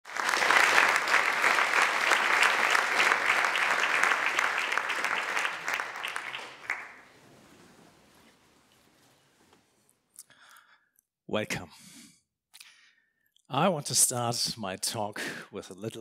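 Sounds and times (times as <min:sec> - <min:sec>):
audience applauding: 0:00.0 - 0:08.3.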